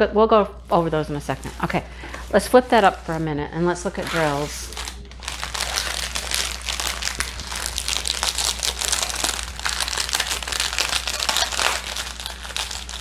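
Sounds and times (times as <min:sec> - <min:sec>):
plastic bag crinkling: 0:03.8 - 0:13.0.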